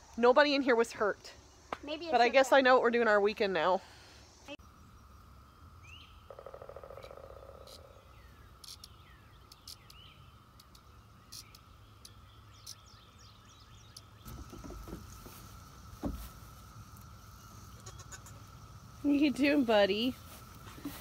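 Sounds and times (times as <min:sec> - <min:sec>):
faint high hum: 0:07.1 - 0:21.0.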